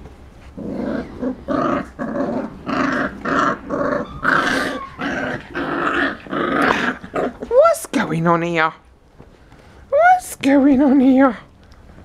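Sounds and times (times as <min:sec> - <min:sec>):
puppies play-growling: 0:00.3 - 0:07.8.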